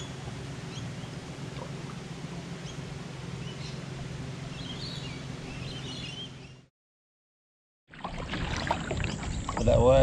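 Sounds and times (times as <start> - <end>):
low hum: 0.0 - 6.7
river ambience: 0.0 - 6.7, 7.9 - 10.0.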